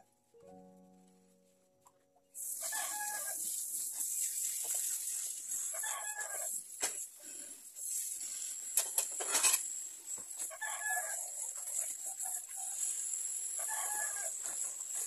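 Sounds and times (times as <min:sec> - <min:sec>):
rooster crowing: 0:02.6 - 0:03.4, 0:05.8 - 0:06.5, 0:10.5 - 0:11.2, 0:13.6 - 0:14.4
tap water running into sink: 0:03.4 - 0:05.5
dishes clattering: 0:08.8 - 0:09.6.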